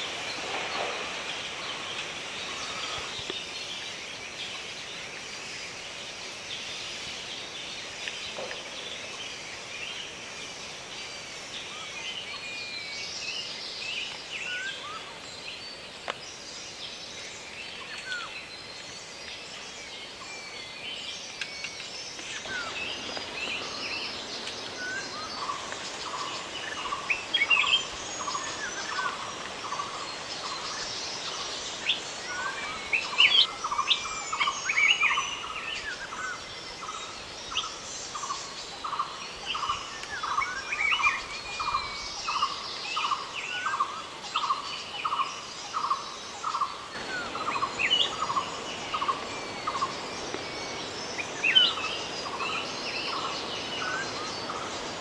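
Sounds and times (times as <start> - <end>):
birds chirping and whistling: 0.0 - 3.5, 20.2 - 55.0.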